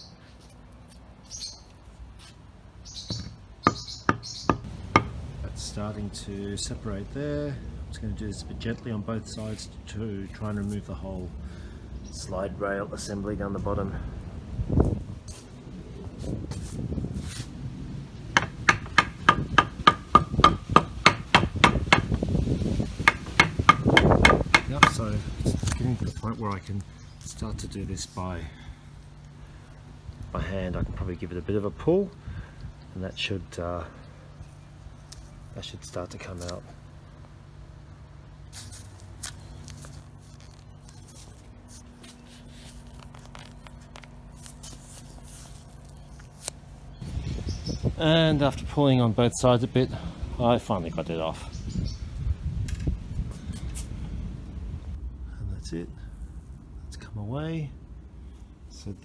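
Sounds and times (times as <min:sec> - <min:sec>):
steady low hum: 0:00.0 - 0:59.0
hammer striking wooden block: 0:03.2 - 0:05.2, 0:18.4 - 0:22.2, 0:23.0 - 0:25.0.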